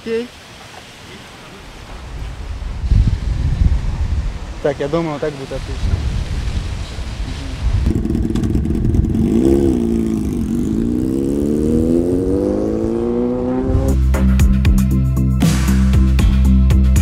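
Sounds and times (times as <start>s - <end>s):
motorcycle engine accelerating: 7.8s - 14.5s
electronic music with heavy beat: 13.9s - 17.0s.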